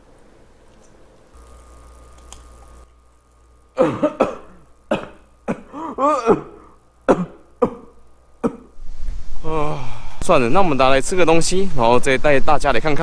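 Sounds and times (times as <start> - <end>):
man coughing and spluttering: 3.8 - 8.7.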